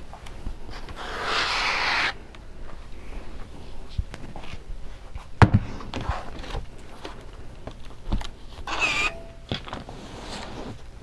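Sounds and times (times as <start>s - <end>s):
short squeak: 8.7s - 9.5s.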